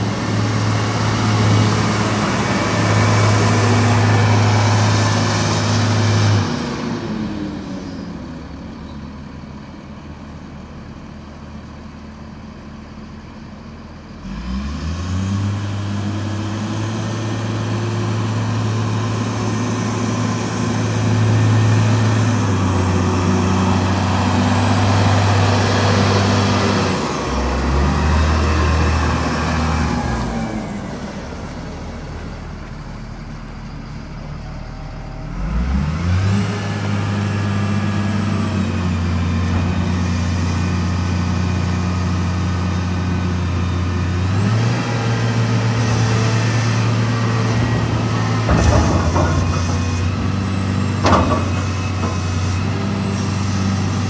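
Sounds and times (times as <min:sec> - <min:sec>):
diesel loader engine revving: 0:00.0 - 0:09.6, 0:14.1 - 0:54.0.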